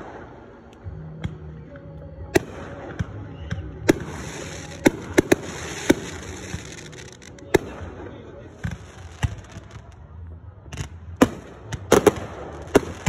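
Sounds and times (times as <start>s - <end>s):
fireworks bangs: 2.3s - 10.0s, 10.7s - 13.0s
crackling hiss of sparks: 3.9s - 7.5s.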